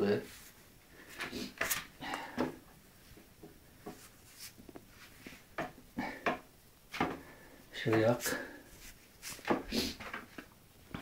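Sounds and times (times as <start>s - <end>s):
camera and clothing rustles: 3.9s - 5.4s, 8.0s - 10.5s.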